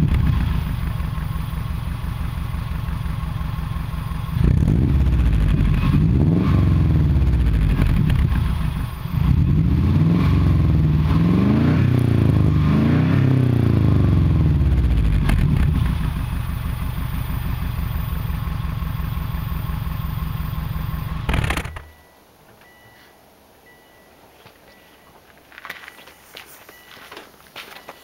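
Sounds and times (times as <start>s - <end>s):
car engine revving and idling: 0.0s - 21.9s.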